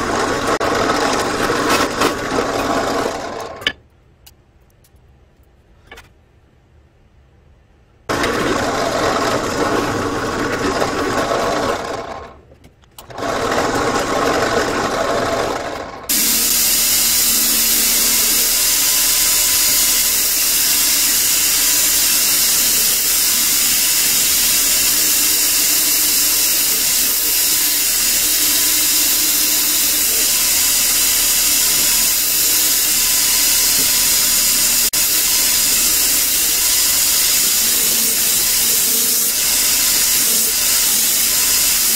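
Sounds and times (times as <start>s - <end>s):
drill press running: 0.0s - 3.8s, 8.1s - 12.4s, 13.0s - 41.9s
belt grinder sanding: 13.1s - 41.9s.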